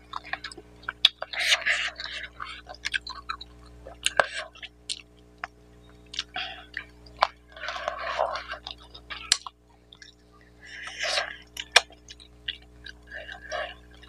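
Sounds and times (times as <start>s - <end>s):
wet chewing: 0.0s - 14.0s
lip smacks and clicks: 0.1s - 10.2s.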